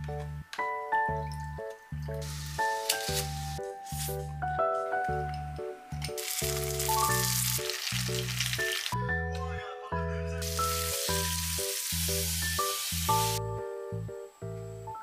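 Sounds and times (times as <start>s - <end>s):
food sizzling in hot oil: 6.2s - 9.0s, 10.4s - 13.4s.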